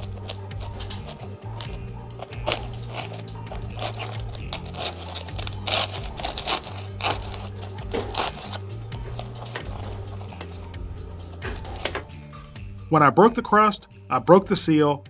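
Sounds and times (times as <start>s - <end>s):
fork crunching pastry crust: 0.0s - 11.9s.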